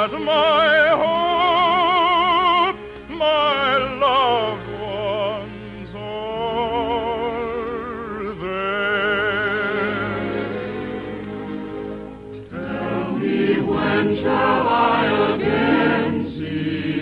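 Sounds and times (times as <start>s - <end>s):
man singing with vibrato: 0.0s - 10.9s
orchestra playing: 3.4s - 16.7s.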